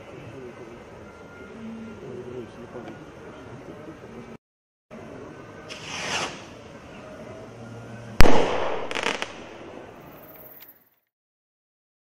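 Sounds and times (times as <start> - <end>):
firework crackles: 5.7 - 6.6, 8.2 - 10.6
firework bang: 8.2 - 9.9.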